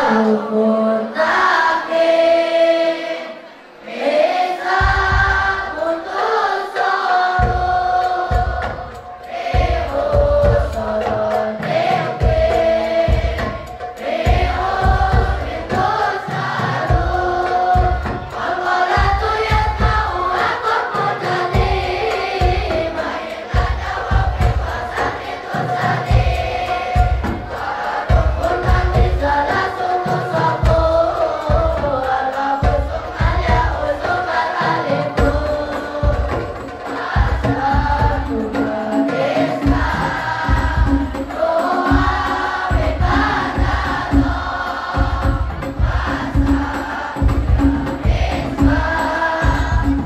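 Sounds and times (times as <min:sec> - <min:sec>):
boys chanting in unison: 0:00.0 - 0:50.0
low thumping beat: 0:04.7 - 0:05.7, 0:39.6 - 0:50.0.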